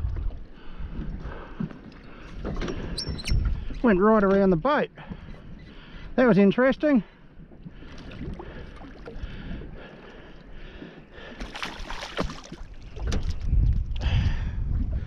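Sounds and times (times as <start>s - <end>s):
fish splashing at surface: 11.4s - 13.2s.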